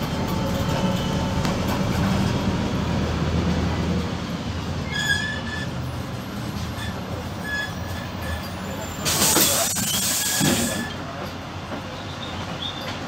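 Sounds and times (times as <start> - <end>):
bus engine drone: 0.0 - 12.4
road rumble: 0.0 - 13.0.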